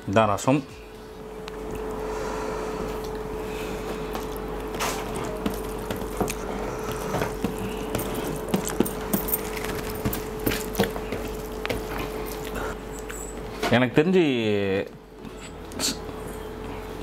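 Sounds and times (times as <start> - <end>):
steady hum: 0.0 - 17.0
fingers mixing wet rice: 2.9 - 12.8.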